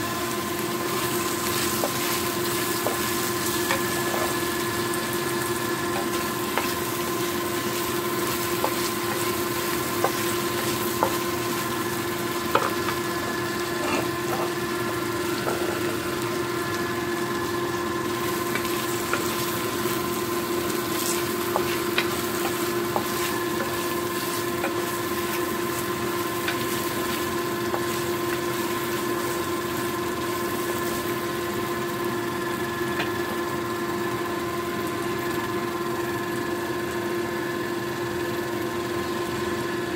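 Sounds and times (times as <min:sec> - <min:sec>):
steady hum: 0:00.0 - 0:34.4
sausages sizzling in a frying pan: 0:00.0 - 0:39.9.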